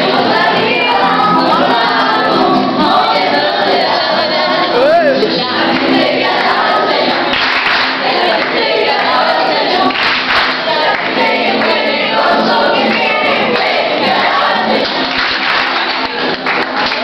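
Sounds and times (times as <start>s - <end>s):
group singing in chorus: 0.0s - 17.0s.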